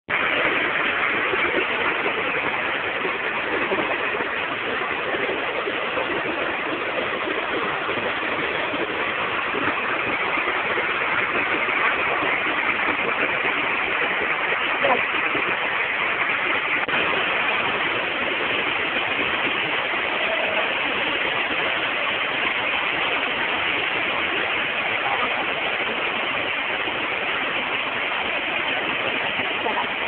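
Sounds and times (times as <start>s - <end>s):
waterfall rushing over rock: 0.1s - 30.0s.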